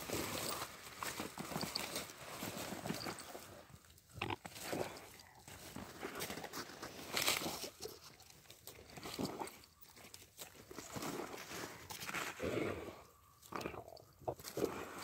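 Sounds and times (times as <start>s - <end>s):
dog sniffing and snuffling: 4.4s - 15.0s.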